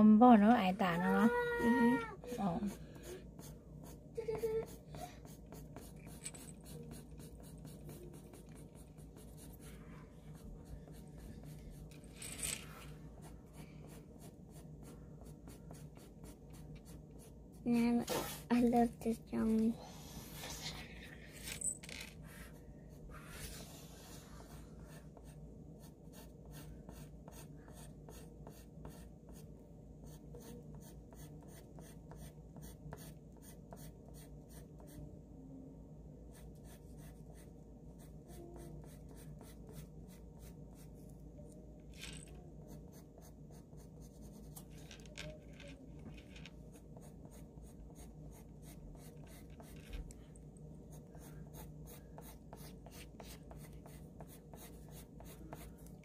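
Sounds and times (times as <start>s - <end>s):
steady low hum: 0.0s - 56.0s
pencil scratching on paper: 2.2s - 12.1s, 12.7s - 18.6s, 22.2s - 35.0s, 36.3s - 41.1s, 42.6s - 44.8s, 46.5s - 50.1s, 50.9s - 56.0s.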